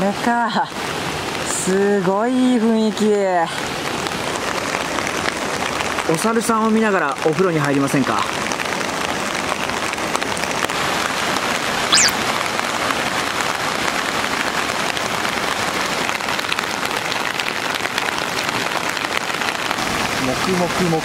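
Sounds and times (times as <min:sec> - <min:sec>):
high chirp: 0:11.9 - 0:12.2.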